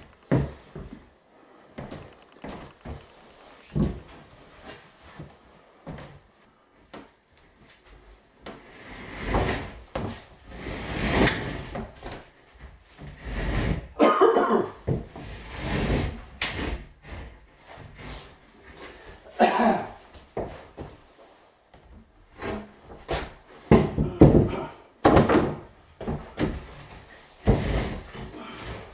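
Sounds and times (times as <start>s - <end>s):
wooden boards scraping and thudding: 22.4s - 28.9s.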